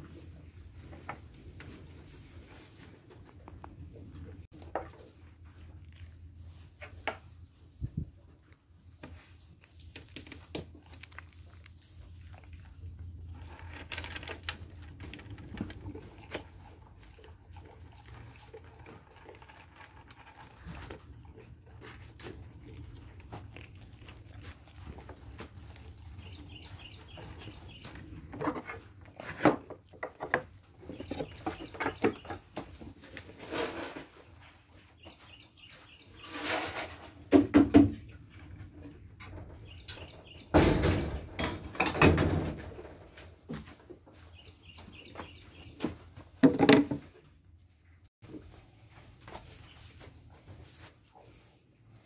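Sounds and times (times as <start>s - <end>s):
gate knocks and rattles: 40.5s - 42.8s.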